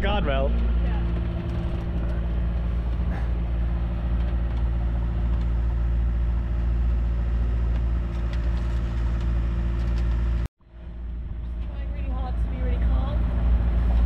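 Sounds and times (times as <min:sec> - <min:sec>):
boat engine droning: 0:00.0 - 0:14.0.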